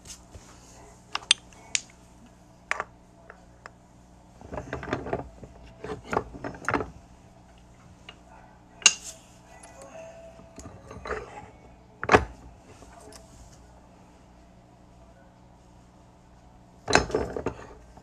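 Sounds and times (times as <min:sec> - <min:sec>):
knocking and rubbing: 0:04.4 - 0:07.0.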